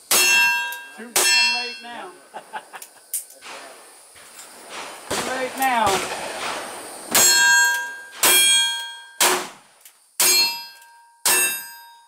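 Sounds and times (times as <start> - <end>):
steel target ringing: 0.1 - 2.1, 4.7 - 9.5, 10.2 - 12.0.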